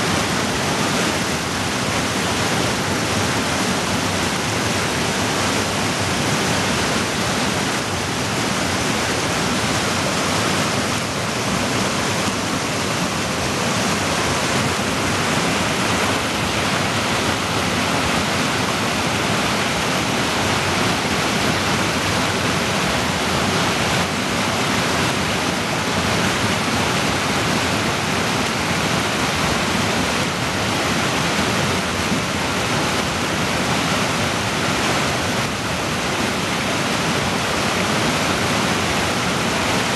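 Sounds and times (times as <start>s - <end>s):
water roaring over boulders: 0.0s - 39.9s.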